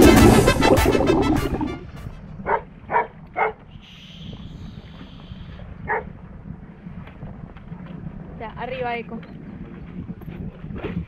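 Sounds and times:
low steady rumble: 0:00.0 - 0:03.4
dog barking: 0:02.4 - 0:03.6, 0:05.9 - 0:06.1.

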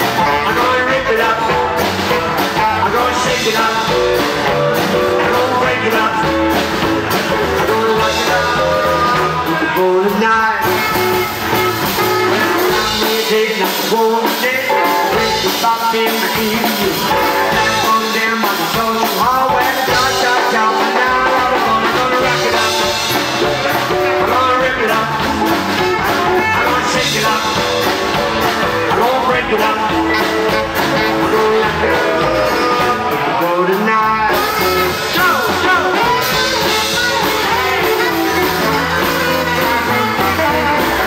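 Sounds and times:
drums: 0:00.0 - 0:41.0
guitar: 0:00.0 - 0:41.0
upright bass: 0:00.0 - 0:41.0
saxophone bending notes: 0:10.5 - 0:13.2, 0:19.6 - 0:41.0.

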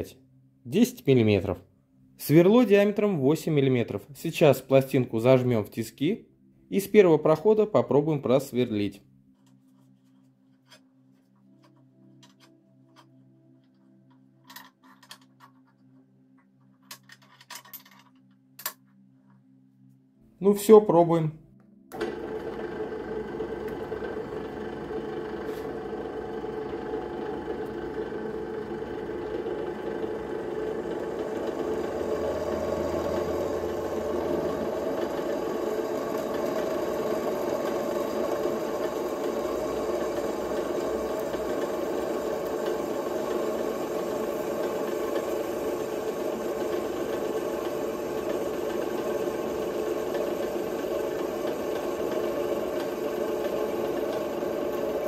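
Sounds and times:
drill press boring into metal: 0:21.9 - 0:55.0.

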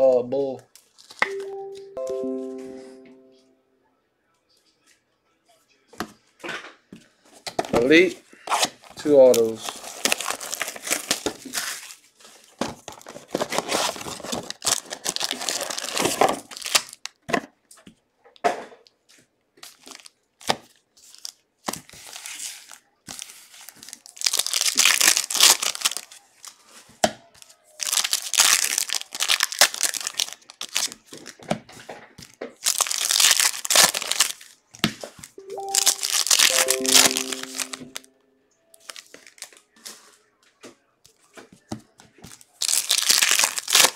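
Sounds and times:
foil wrappers crinkling and tearing: 0:00.7 - 0:01.2, 0:08.5 - 0:17.3, 0:19.6 - 0:31.5, 0:32.1 - 0:37.8, 0:38.8 - 0:40.1, 0:42.2 - 0:43.9.

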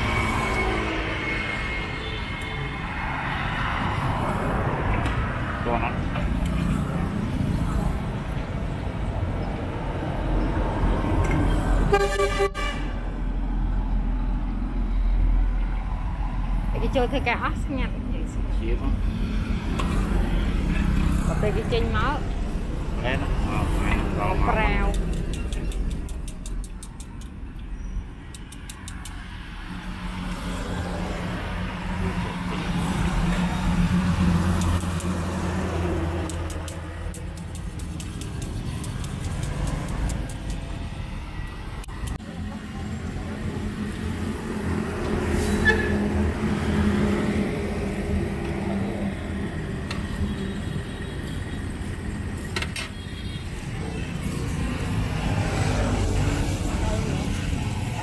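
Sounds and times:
street and traffic noise: 0:00.0 - 0:58.0
vehicle engine humming: 0:00.0 - 0:58.0
vehicle horn toot: 0:11.9 - 0:13.0
rapid high ticking: 0:24.6 - 0:27.4, 0:34.0 - 0:40.7.

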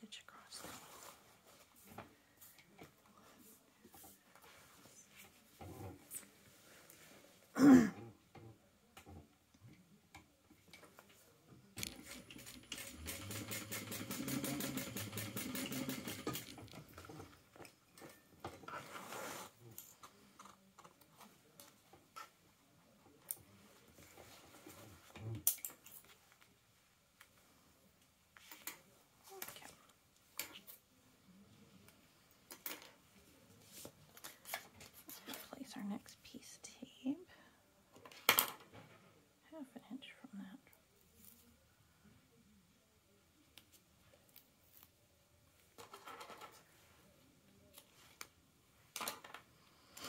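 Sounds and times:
sewing machine stitching: 0:11.9 - 0:16.8.

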